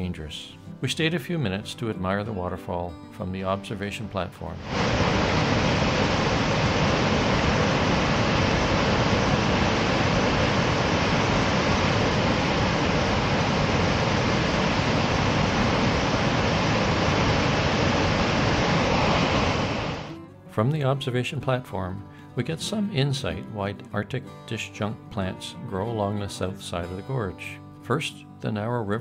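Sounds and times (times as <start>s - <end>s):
waterfall rushing: 4.6s - 20.2s.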